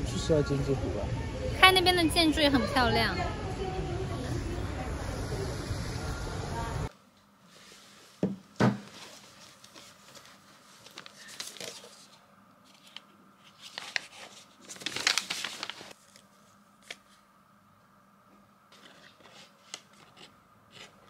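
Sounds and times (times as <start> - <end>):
rustling and crinkling: 7.5 - 17.2.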